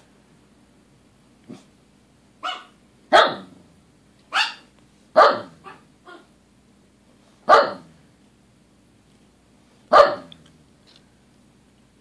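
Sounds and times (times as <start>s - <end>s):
dog barking: 2.4s - 3.6s, 4.3s - 6.3s, 7.4s - 8.0s, 9.9s - 10.4s.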